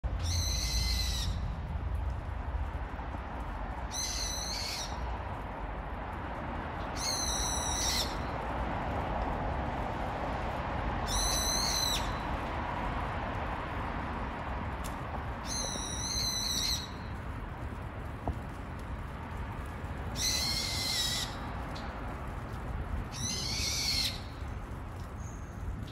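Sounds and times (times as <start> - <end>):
bird calling shrilly: 0.2 - 1.4, 3.9 - 5.0, 11.1 - 12.1, 15.5 - 17.0, 20.2 - 21.4, 23.2 - 24.3.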